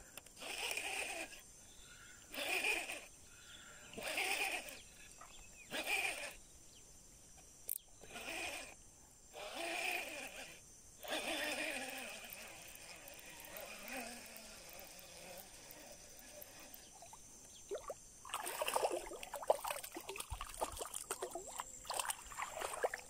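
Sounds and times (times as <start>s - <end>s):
fishing reel being cranked: 0.1s - 1.4s, 2.0s - 6.4s, 7.7s - 8.8s, 9.4s - 17.2s.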